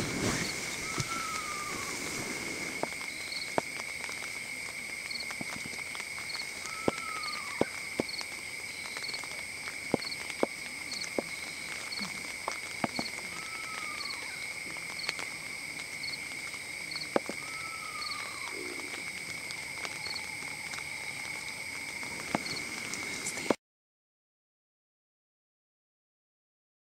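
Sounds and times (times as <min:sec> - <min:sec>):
insect high trill: 0:00.0 - 0:23.6
insect triple chirps: 0:00.0 - 0:23.6.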